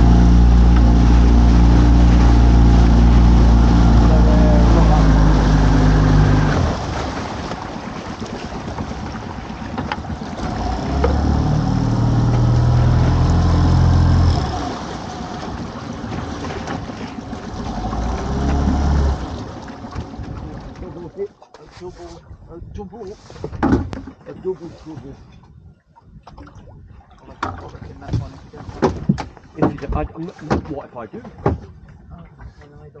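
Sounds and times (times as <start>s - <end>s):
boat engine running: 0.0s - 22.8s
sharp knocks: 27.4s - 31.7s.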